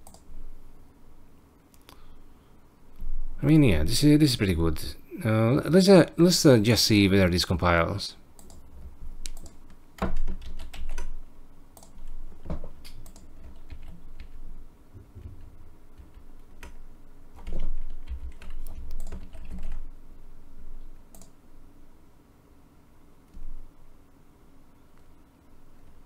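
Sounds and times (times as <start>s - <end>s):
computer keyboard typing: 8.4s - 11.2s, 11.8s - 14.4s, 15.2s - 16.8s, 17.4s - 19.9s, 21.1s - 21.3s.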